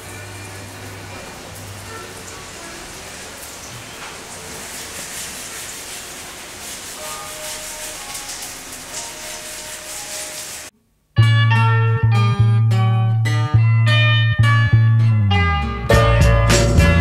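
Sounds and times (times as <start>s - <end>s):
sanding block rubbing on board: 4.2s - 10.7s.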